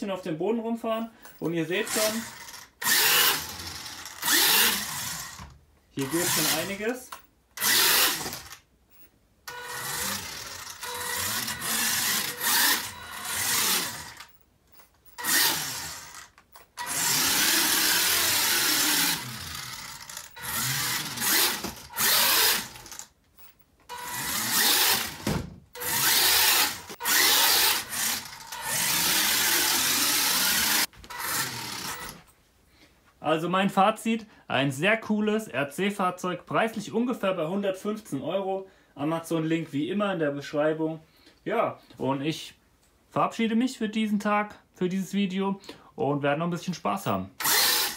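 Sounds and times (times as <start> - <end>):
toy car electric motor whirring: 1.8 - 6.8, 7.6 - 8.6, 9.5 - 14.4, 15.1 - 23.1, 23.9 - 32.2, 47.4 - 47.9.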